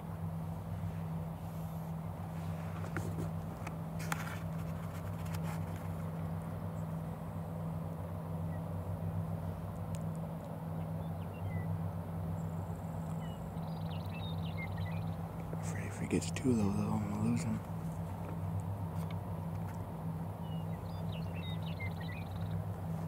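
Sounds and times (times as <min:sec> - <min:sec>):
outdoor background hiss: 0:00.0 - 0:23.0
steady low hum: 0:00.0 - 0:23.0
faint clicks: 0:09.7 - 0:10.6.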